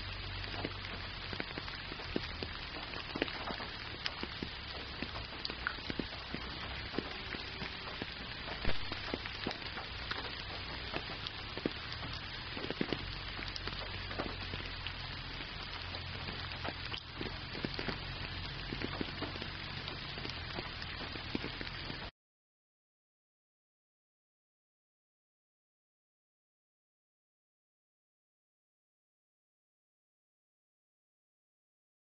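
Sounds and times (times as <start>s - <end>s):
raindrops ticking: 0.0s - 22.1s
steady rain hiss: 0.0s - 22.1s.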